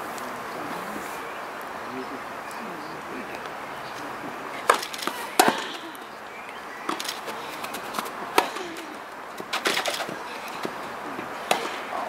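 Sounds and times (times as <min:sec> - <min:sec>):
background noise: 0:00.0 - 0:12.0
tennis racket hitting ball: 0:04.6 - 0:06.1, 0:06.8 - 0:12.0.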